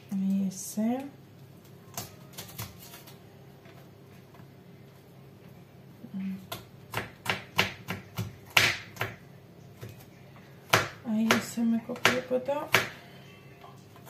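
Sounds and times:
knife chopping on wooden board: 0:06.5 - 0:09.2, 0:10.7 - 0:13.0.

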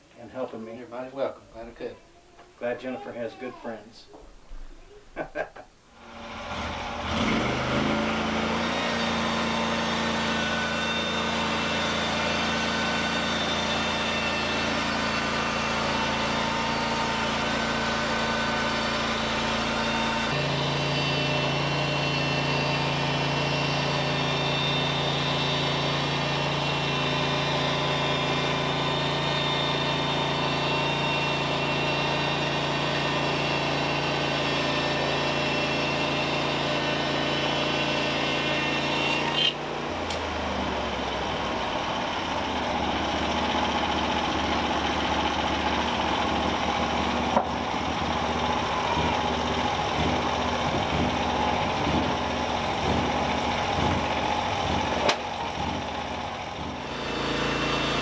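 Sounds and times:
sawmill gas engine running: 0:06.0 - 0:58.0
band blade sawing through log: 0:07.0 - 0:39.6, 0:56.8 - 0:58.0.

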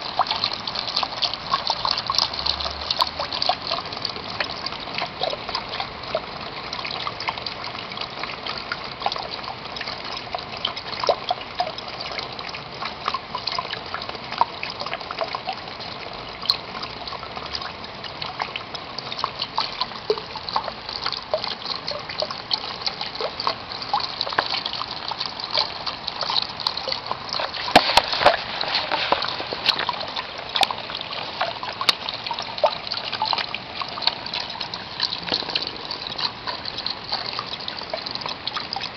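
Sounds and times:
rain on plastic sheet: 0:00.0 - 0:09.7, 0:18.6 - 0:38.9.

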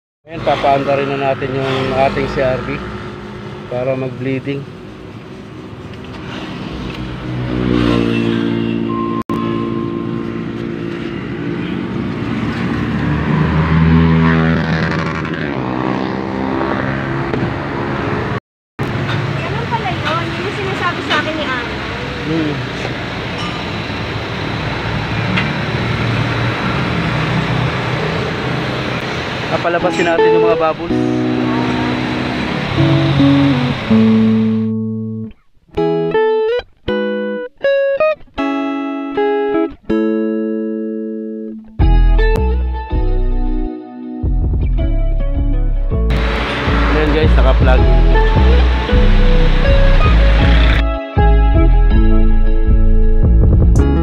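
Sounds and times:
car engine revving: 0:00.3 - 0:19.1, 0:20.3 - 0:34.7, 0:46.1 - 0:51.0
plucked guitar melody: 0:08.9 - 0:11.6, 0:29.8 - 0:54.0.

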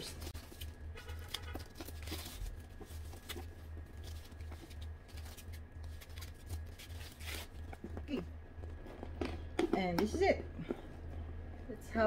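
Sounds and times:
protective wrapping rustling: 0:00.0 - 0:09.6
steady low hum: 0:00.0 - 0:12.0.

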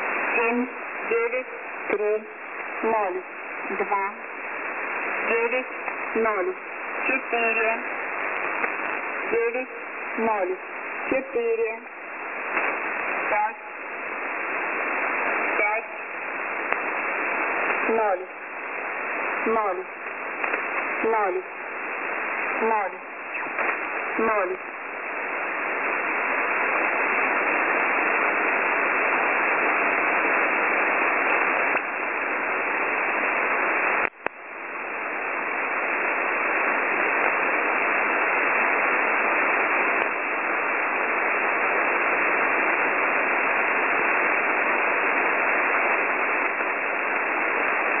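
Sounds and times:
shortwave radio hiss: 0:00.0 - 0:48.0
faint clicks: 0:12.5 - 0:12.8, 0:16.6 - 0:16.9, 0:20.0 - 0:20.9, 0:31.7 - 0:31.9.

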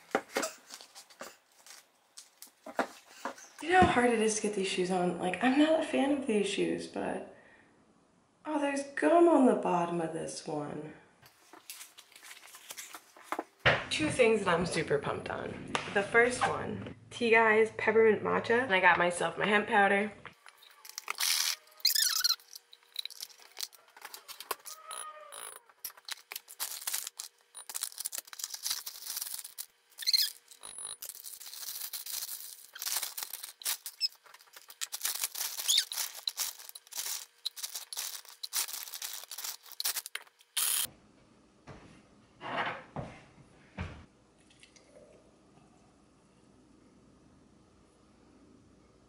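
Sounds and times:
plastic bag crinkling: 0:20.4 - 0:40.9.

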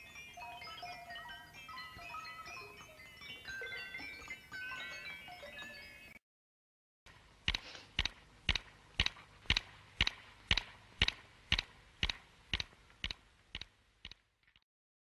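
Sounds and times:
clock ticking: 0:07.1 - 0:14.6.

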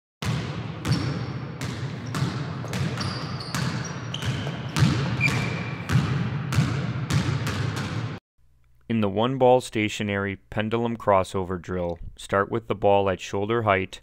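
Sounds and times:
basketball bouncing on court: 0:00.2 - 0:08.2
shoe squeaks: 0:00.8 - 0:05.9.

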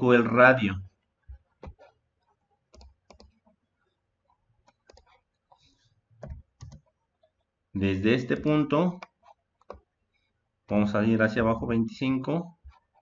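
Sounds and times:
computer mouse clicks: 0:01.6 - 0:03.6, 0:04.3 - 0:07.0, 0:09.0 - 0:09.9.

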